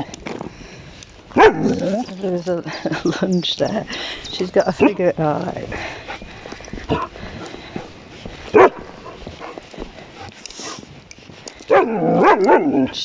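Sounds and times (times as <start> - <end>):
dog yelping: 1.4 - 2.0, 11.7 - 12.9.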